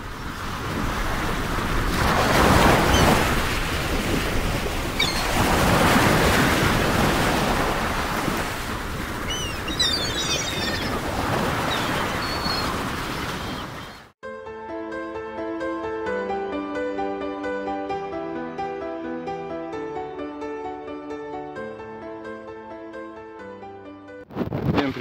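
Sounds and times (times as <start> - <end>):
wind buffeting microphone: 0.0 - 14.0
choppy river water: 0.0 - 14.1.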